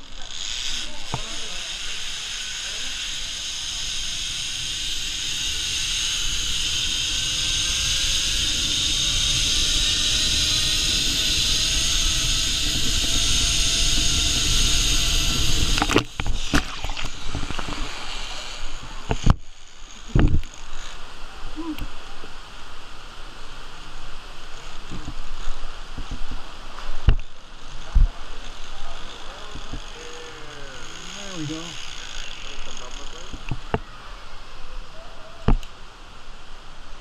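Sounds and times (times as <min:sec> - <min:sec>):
zip-line trolley whirring on cable: 0:00.0 - 0:22.3, 0:23.5 - 0:35.0
rising whine: 0:00.8 - 0:20.6.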